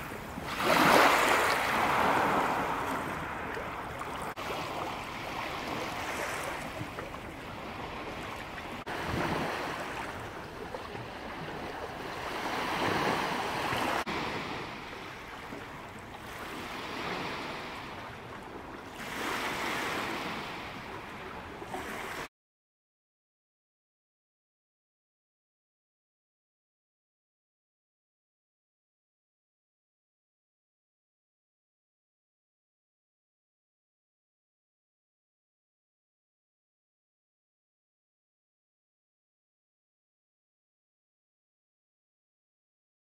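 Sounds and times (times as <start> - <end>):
waves washing onto beach: 0.0 - 22.3.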